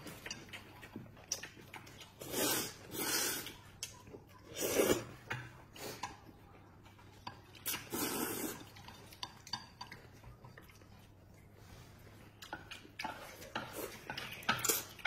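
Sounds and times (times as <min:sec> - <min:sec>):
noodles being slurped: 0:01.3 - 0:06.2, 0:07.6 - 0:09.6
chopsticks clicking on a basin: 0:08.9 - 0:10.7.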